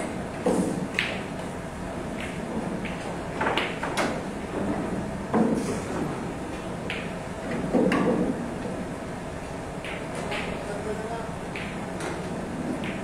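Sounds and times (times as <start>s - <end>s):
pool balls clacking: 2.1s - 8.8s, 9.8s - 10.6s, 11.5s - 13.0s.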